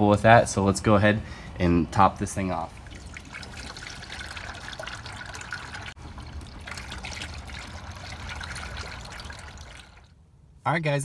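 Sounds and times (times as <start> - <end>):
liquid trickling into funnel: 2.4 - 10.2.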